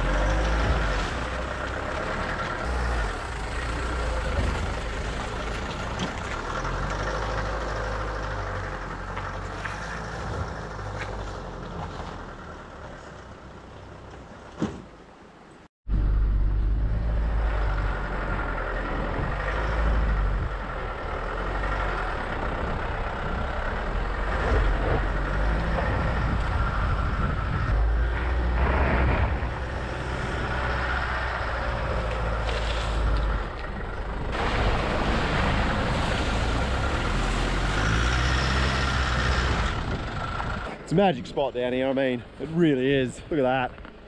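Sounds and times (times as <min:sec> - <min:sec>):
tyres on gravel: 0:00.0 - 0:15.0, 0:21.0 - 0:44.0
engine rumble: 0:00.0 - 0:44.0
wind: 0:00.0 - 0:44.0.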